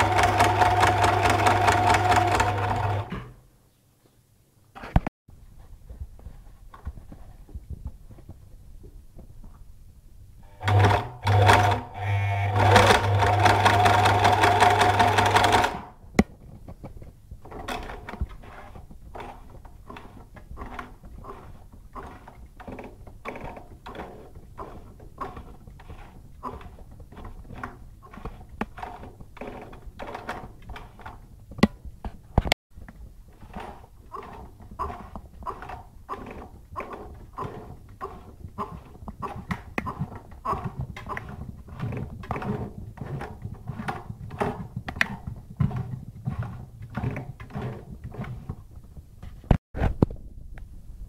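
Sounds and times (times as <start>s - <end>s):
sewing machine running: 0.0s - 3.2s, 10.5s - 15.9s.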